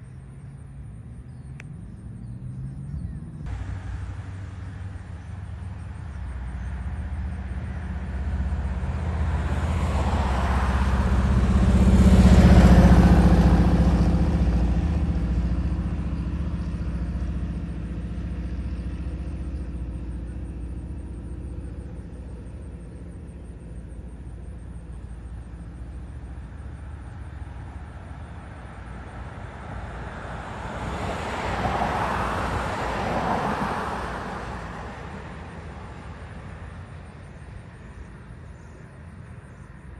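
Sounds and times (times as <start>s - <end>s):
vehicles passing close by: 0.0s - 39.9s.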